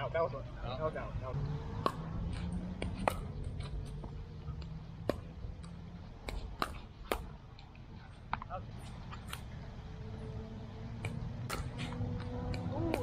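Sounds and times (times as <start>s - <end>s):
paddles hitting ball: 1.8s - 7.4s, 11.0s - 13.0s.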